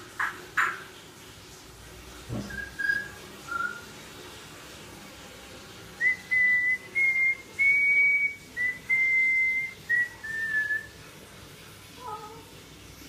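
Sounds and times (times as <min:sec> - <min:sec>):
parrot whistling a tune: 0:02.4 - 0:03.9, 0:06.0 - 0:11.0.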